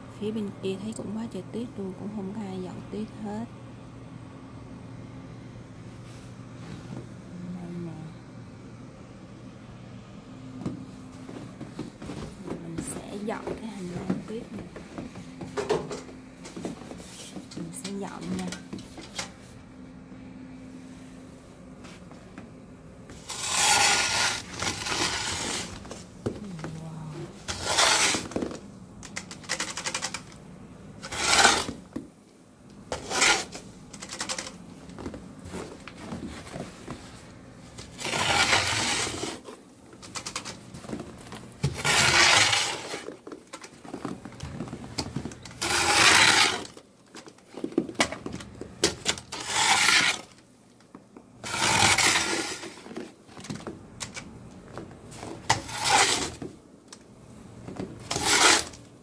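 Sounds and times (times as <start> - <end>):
snow shovel scraping snow: 23.2 - 25.8, 27.5 - 28.4, 31.1 - 31.8, 32.9 - 33.6, 38.0 - 39.4, 41.8 - 43.1, 45.6 - 46.7, 49.3 - 50.3, 51.4 - 52.9, 55.6 - 56.4, 58.1 - 58.8.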